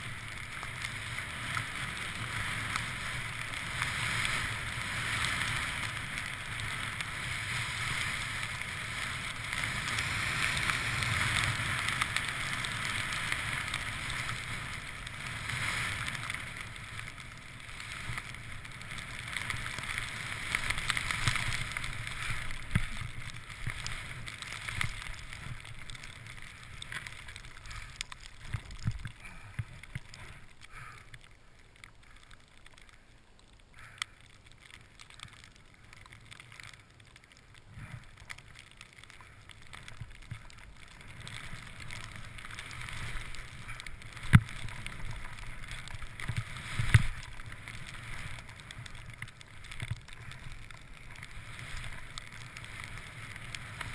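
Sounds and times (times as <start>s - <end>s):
skis hissing through powder snow: 0.0s - 29.5s, 41.0s - 53.9s
wind rumbling on microphone: 0.0s - 30.6s, 36.0s - 53.9s.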